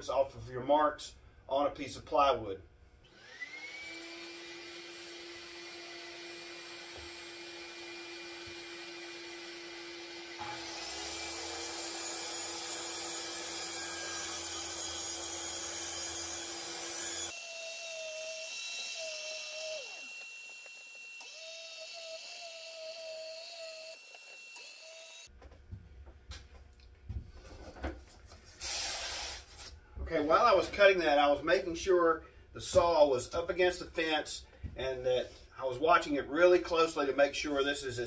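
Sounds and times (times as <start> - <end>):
dust extraction vacuum: 3.1 - 13.6
circular saw cutting plywood: 3.2 - 25.3.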